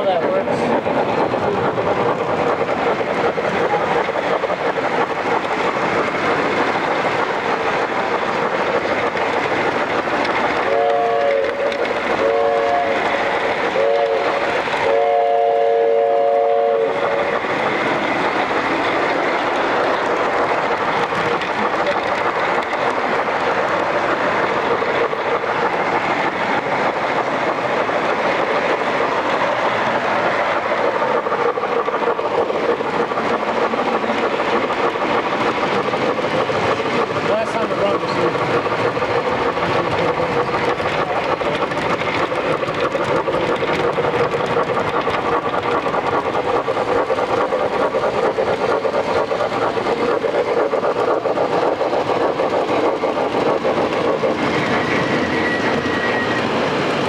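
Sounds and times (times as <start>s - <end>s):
model train running: 0.0s - 57.0s
train horn blasts: 10.7s - 11.4s, 12.2s - 13.0s, 13.8s - 17.0s.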